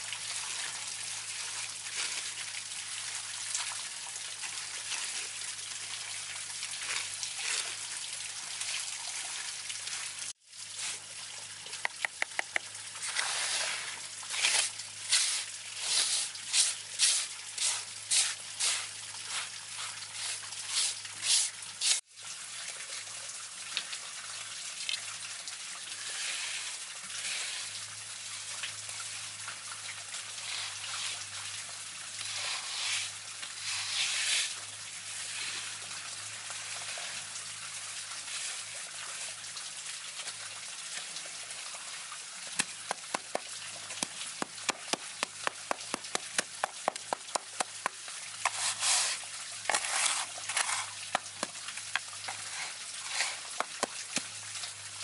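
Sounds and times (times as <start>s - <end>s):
trowel scraping wet concrete: 13.0s - 22.0s, 26.1s - 27.8s, 30.4s - 31.3s, 32.2s - 35.8s, 44.0s - 54.3s
trowel tapping concrete: 42.6s - 49.1s, 53.1s - 54.3s.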